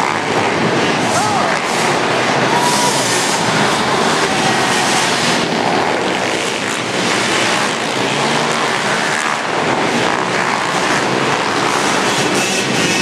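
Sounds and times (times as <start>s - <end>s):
small motorbike engines racing: 0.0s - 13.0s.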